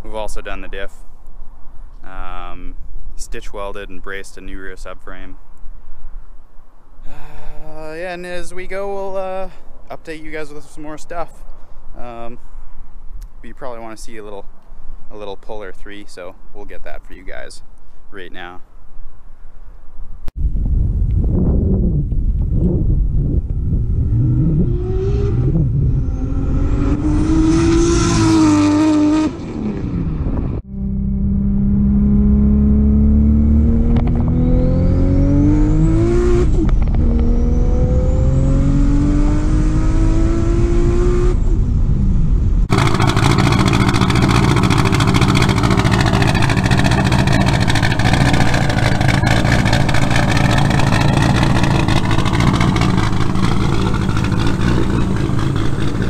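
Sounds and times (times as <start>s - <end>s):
car engine accelerating: 23.8s - 41.8s, 42.6s - 56.0s
car engine idling unevenly: 42.7s - 56.0s
gear change: 42.7s - 56.0s.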